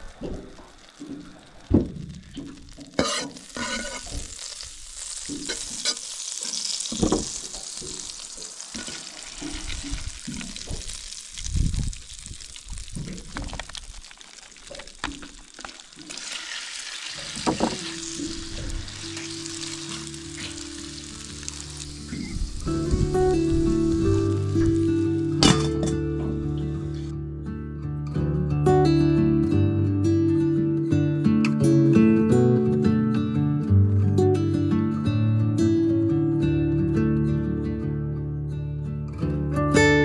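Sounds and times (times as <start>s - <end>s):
butter sizzling in a pan: 0.0s - 27.1s
background music: 22.8s - 27.4s.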